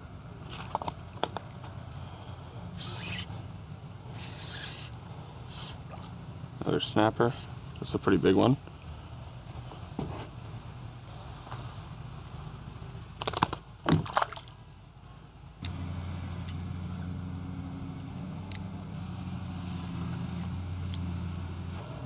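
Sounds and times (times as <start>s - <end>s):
motor humming: 1.8s - 6.6s, 15.6s - 22.0s.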